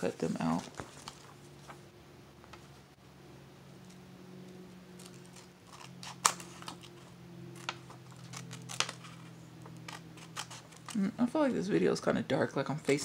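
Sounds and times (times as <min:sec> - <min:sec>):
low steady hum: 0:00.0 - 0:13.0
scissors snipping paper: 0:05.0 - 0:11.0.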